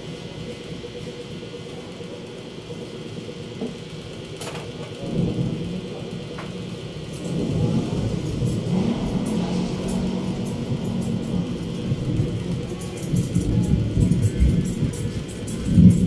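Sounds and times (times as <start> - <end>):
traffic engine rumble: 0.0 - 16.0
steady hum: 5.0 - 16.0.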